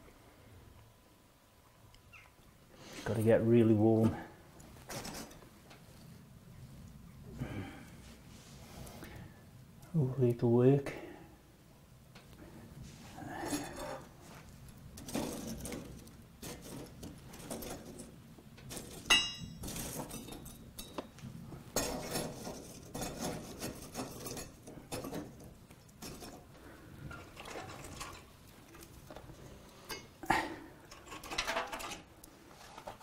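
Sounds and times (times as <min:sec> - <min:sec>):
metal pan scraping on coals: 0:04.8 - 0:05.4, 0:12.8 - 0:21.0, 0:21.8 - 0:30.1
sharp ringing metal clink: 0:19.1 - 0:19.6.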